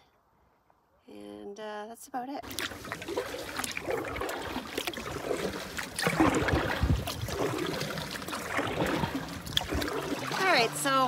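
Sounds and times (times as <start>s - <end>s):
canoe paddle pulling through water: 2.4s - 11.0s
water dripping and splashing: 2.4s - 11.0s.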